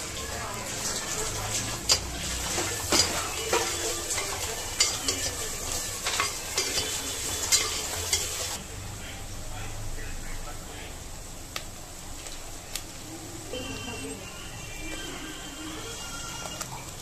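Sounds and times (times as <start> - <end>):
ladle scraping pot: 0.0 - 8.6
onions sizzling in oil: 0.0 - 8.6, 10.7 - 17.0.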